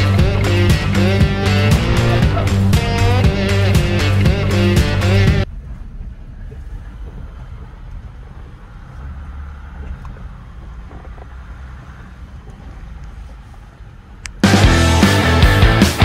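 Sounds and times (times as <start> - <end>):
vehicle engine rumble: 0.0 - 14.6.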